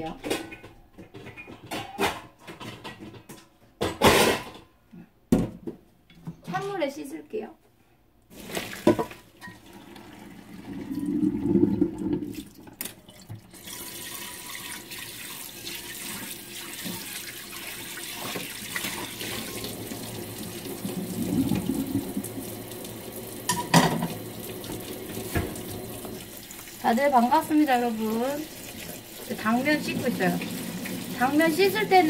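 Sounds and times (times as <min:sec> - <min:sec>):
tap running into sink: 0:18.2 - 0:26.7.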